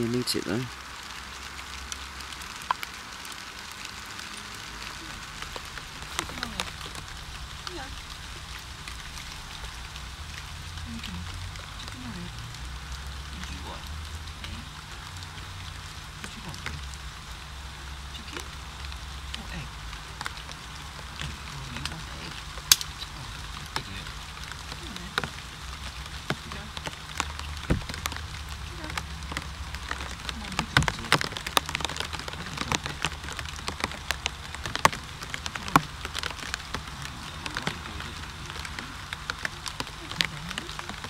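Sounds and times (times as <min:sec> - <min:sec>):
low steady hum: 0:00.0 - 0:41.0
rain falling: 0:00.0 - 0:41.0
raindrops ticking on surfaces: 0:00.0 - 0:41.0.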